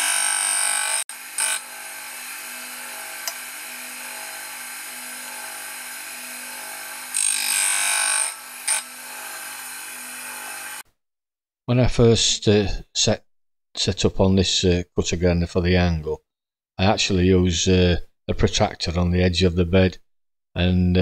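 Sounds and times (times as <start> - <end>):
grinder running: 0.0 - 10.8.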